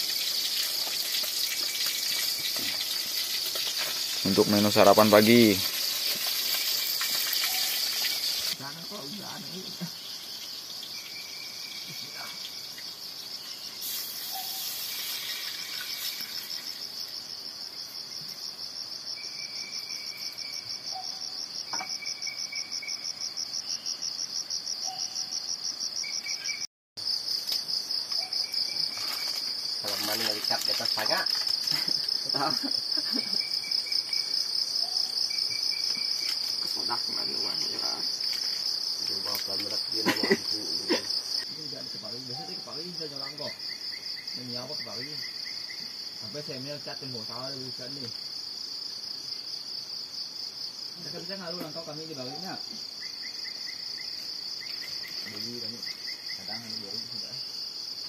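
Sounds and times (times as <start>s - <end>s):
high pulsing insect chorus: 0.0s - 58.0s.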